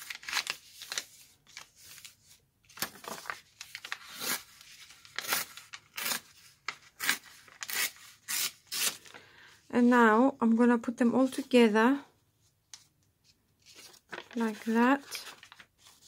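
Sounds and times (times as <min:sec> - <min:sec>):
paper rustling and tearing: 0:00.0 - 0:09.2, 0:13.6 - 0:16.0.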